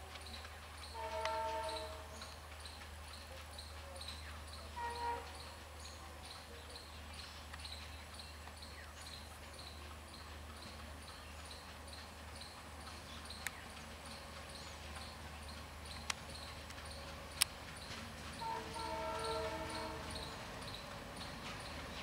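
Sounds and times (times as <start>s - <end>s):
diesel locomotive engine rumble: 0.0s - 22.0s
sharp clicks: 15.9s - 17.6s.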